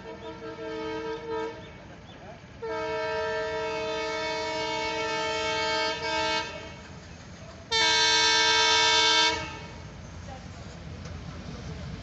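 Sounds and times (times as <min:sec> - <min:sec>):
train horn blasts: 0:00.0 - 0:01.8, 0:02.6 - 0:06.9, 0:07.7 - 0:09.8.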